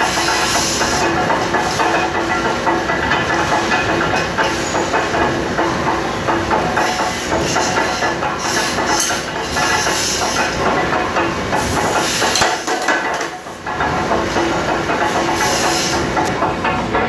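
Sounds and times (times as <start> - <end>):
factory machinery noise: 0.0 - 17.0
hiss: 15.4 - 16.1.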